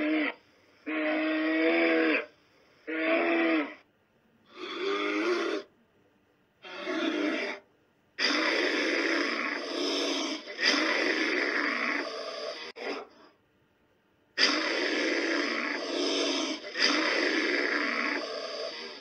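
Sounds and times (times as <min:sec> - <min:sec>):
animal growling: 0:04.5 - 0:05.7, 0:06.6 - 0:13.3, 0:14.4 - 0:19.0.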